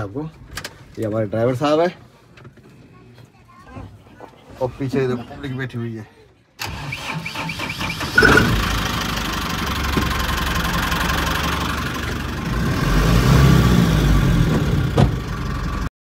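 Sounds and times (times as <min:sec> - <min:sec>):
bus engine rumble: 0:06.6 - 0:15.9.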